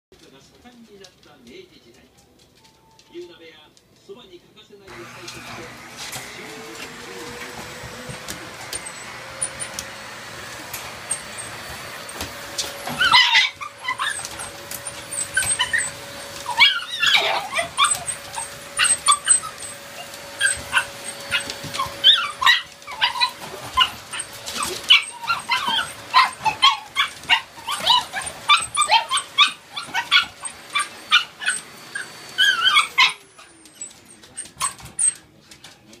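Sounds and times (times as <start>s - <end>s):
vacuum cleaner motor humming: 4.9s - 33.4s
puppies yapping and barking: 5.0s - 35.4s.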